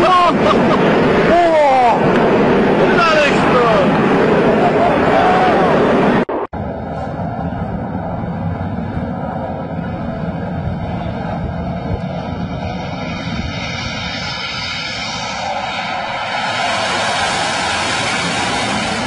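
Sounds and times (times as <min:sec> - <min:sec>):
jet engine roar: 0:00.0 - 0:19.0.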